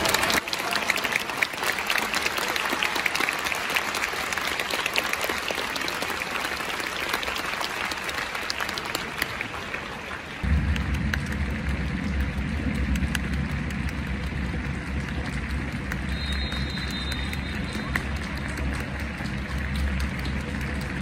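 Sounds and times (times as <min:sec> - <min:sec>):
crowd applauding: 0:00.0 - 0:21.0
low rumble: 0:10.4 - 0:21.0.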